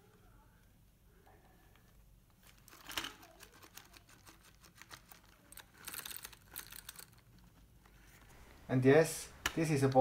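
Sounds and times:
plastic parts clicking and rattling: 2.3 - 8.3.

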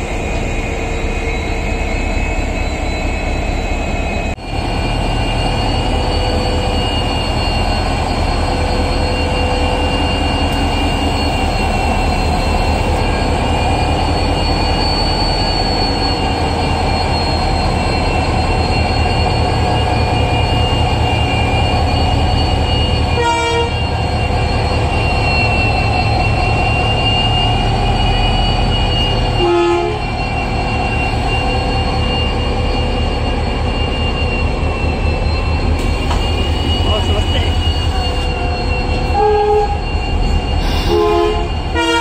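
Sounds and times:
diesel locomotive engine drone: 0.0 - 42.0
locomotive horn toots: 23.1 - 24.0, 29.3 - 30.2, 35.8 - 42.0.

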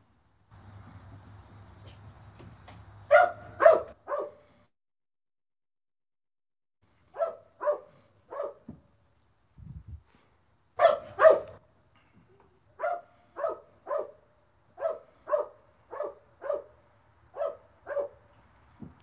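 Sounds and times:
dog barking: 3.1 - 4.5, 7.1 - 8.7, 10.8 - 11.6, 12.8 - 18.3.

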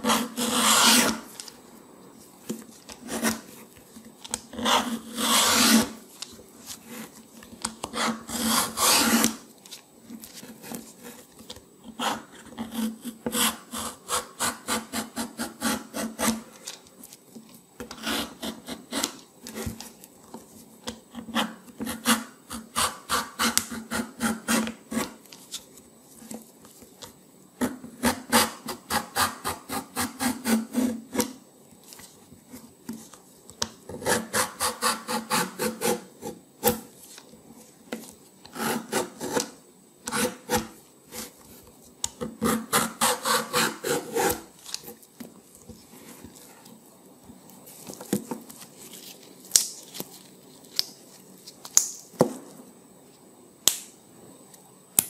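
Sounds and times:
vegetable peeler scraping rind: 42.4 - 44.9.

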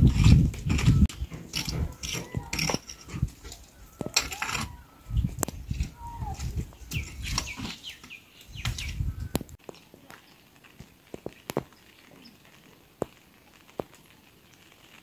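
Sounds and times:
bamboo knocking and scraping: 0.0 - 9.8
high bird chirps: 3.8 - 9.4.

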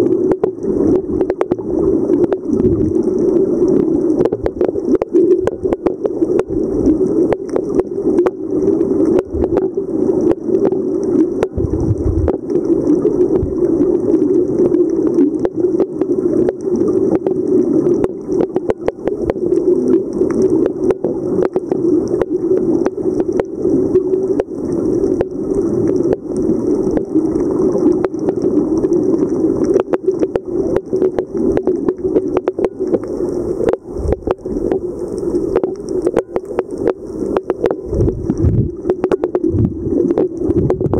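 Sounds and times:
crackling clicks underwater: 0.0 - 40.9
muffled rush of water: 0.0 - 40.9
low thumps: 11.6 - 12.4.

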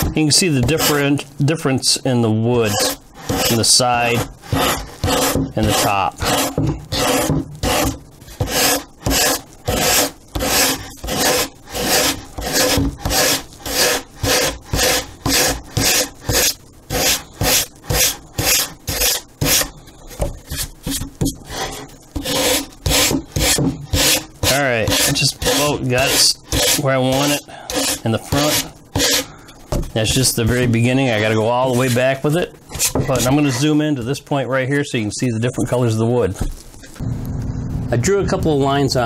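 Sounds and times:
sanding block scrubbing wood: 2.6 - 19.7, 21.5 - 29.2.

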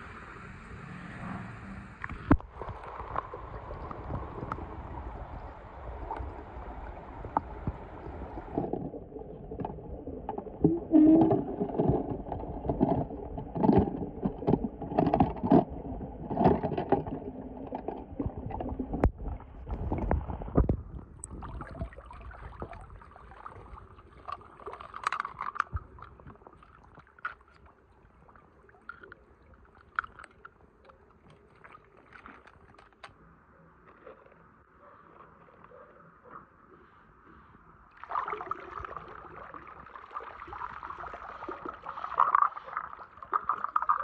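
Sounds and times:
muffled water sloshing underwater: 0.0 - 44.0.

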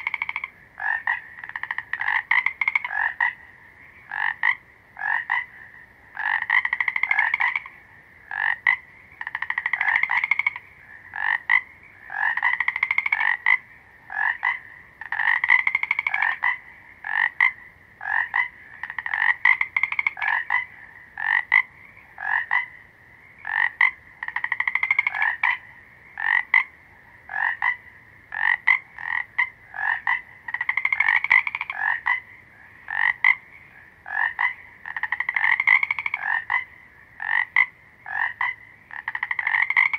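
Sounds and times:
frog croaking: 0.0 - 39.9.

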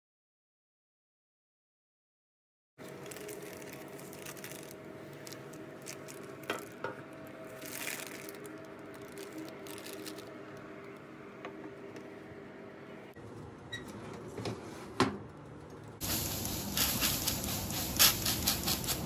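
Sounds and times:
baking paper crinkling: 2.8 - 10.3, 16.0 - 19.0
steady low hum: 15.3 - 19.0.

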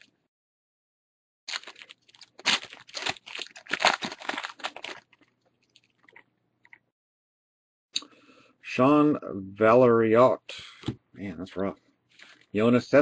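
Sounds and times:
foil wrapper tearing and crinkling: 1.5 - 6.1.

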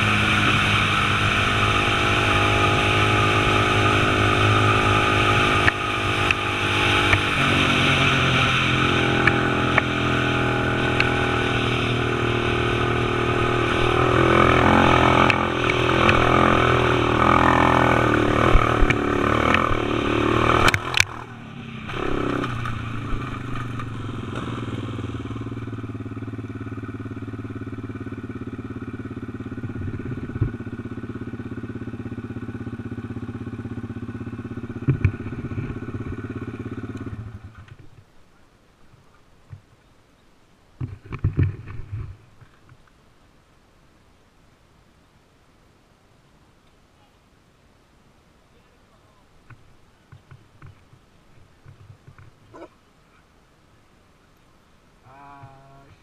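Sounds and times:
quad engine running: 0.0 - 37.6.

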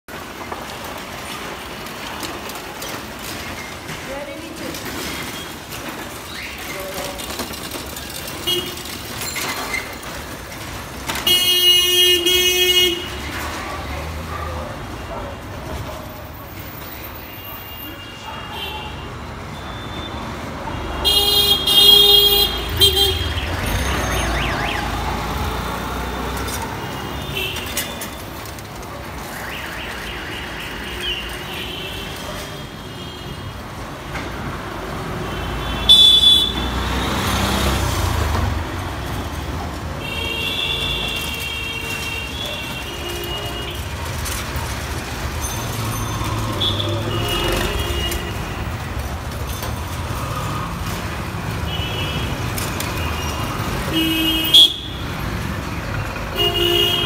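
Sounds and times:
street traffic rumble: 0.0 - 57.0
vehicle horn toots: 35.6 - 36.8, 56.4 - 57.0.

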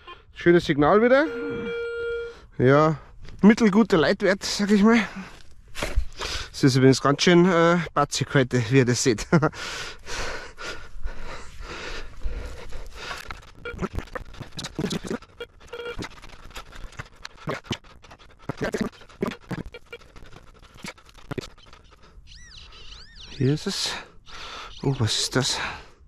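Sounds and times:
person breathing hard: 9.5 - 13.4, 24.0 - 24.8.

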